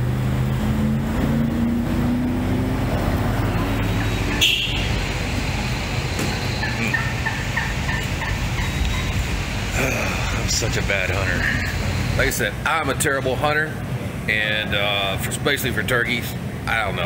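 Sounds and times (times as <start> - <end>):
vehicle engine humming: 0.0 - 17.0
turkeys calling: 3.4 - 12.2.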